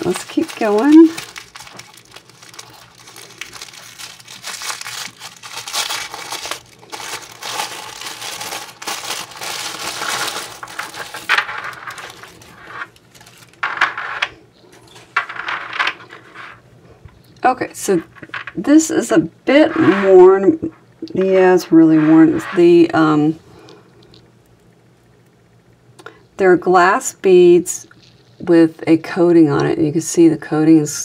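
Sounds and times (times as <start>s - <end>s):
tissue paper crinkling: 0.0s - 13.7s.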